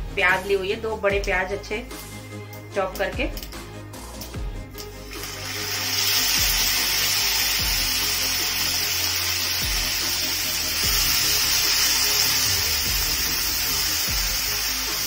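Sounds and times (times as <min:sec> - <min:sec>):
onions sizzling in hot oil: 0:04.9 - 0:15.0.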